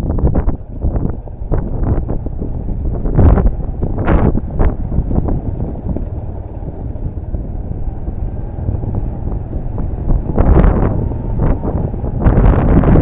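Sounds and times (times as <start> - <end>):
vehicle on gravel road: 0.0 - 13.0
wind buffeting microphone: 0.0 - 13.0.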